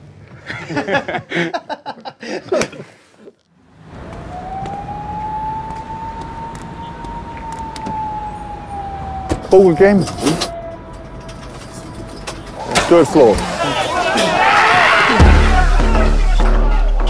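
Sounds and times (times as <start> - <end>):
low city rumble: 3.4 - 17.0
siren: 3.8 - 15.2
voices: 5.6 - 17.0.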